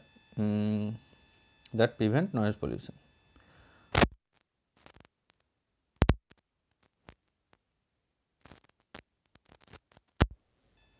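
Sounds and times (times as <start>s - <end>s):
faint clicks and taps: 6.0s - 7.2s.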